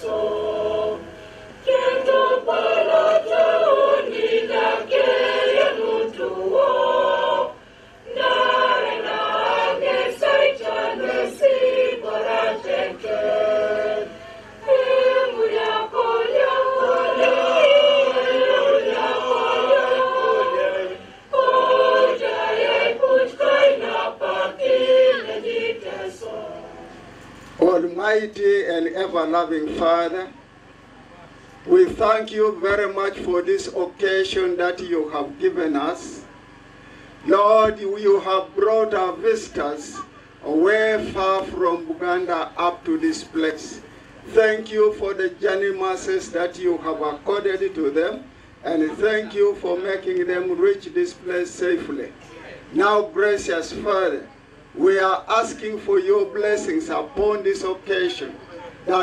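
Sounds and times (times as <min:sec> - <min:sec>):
crowd singing an anthem: 0:00.0 - 0:27.8.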